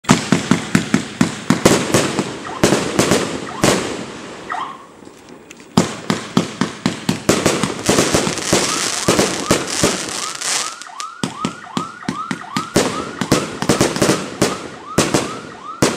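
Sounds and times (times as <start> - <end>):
fireworks reports: 0.0 - 15.9
rising firework whistle: 7.7 - 15.9.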